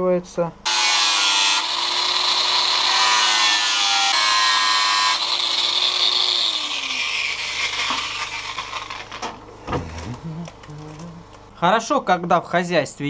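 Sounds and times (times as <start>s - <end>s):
angle grinder cutting metal: 0.7s - 9.2s.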